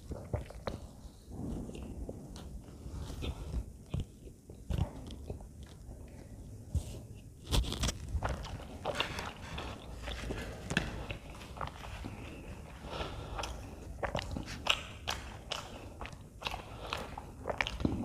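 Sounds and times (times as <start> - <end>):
wet chewing sounds: 0.0 - 18.0.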